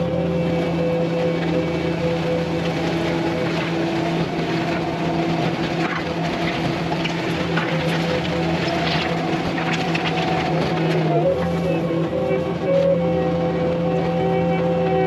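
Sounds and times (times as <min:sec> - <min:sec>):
diesel engine under load: 0:00.0 - 0:15.0
grader scraping soil: 0:02.3 - 0:12.6.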